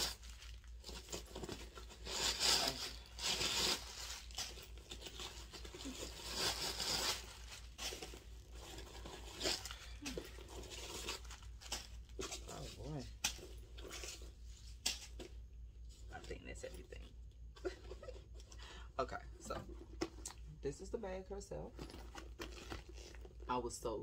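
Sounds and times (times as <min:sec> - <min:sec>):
paper rustling and crinkling: 0:00.0 - 0:16.2, 0:21.7 - 0:23.4.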